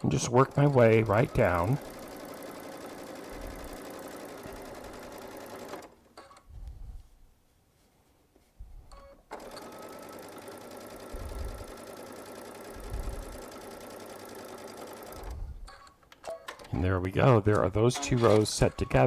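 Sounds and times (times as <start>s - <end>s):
sewing machine stitching: 0.0s - 6.4s, 8.9s - 16.7s.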